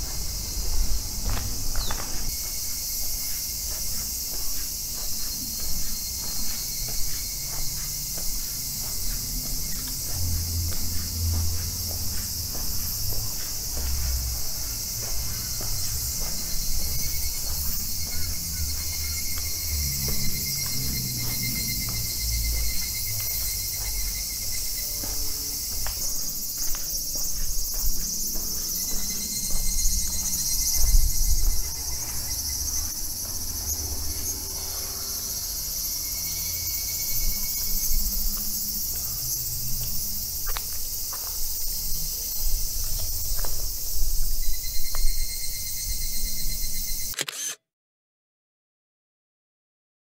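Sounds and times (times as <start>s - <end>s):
handheld camera rumble and ticks: 47.1s - 47.6s.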